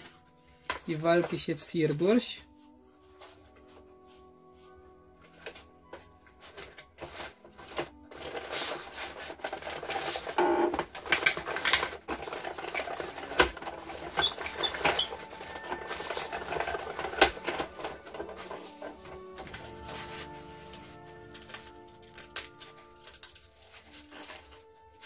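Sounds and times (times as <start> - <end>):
die-cutting machine clattering: 6.5 - 20.2.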